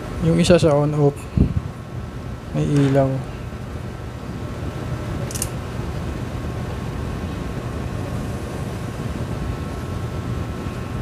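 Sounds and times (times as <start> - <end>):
fan humming: 0.0 - 11.0.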